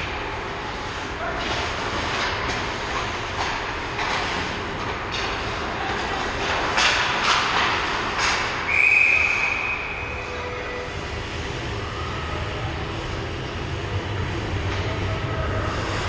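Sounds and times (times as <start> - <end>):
low rink rumble: 0.0 - 16.0
hockey stick or puck clack: 1.4 - 8.6
referee's whistle blast: 8.7 - 10.3.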